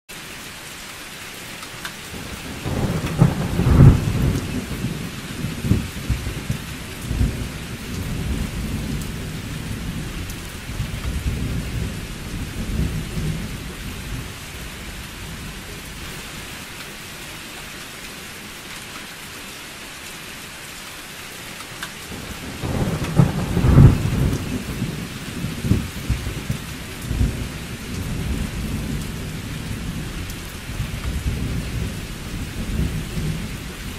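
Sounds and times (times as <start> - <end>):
rain hissing: 0.1 - 33.9
thunder rolling: 2.2 - 16.1, 22.1 - 33.9.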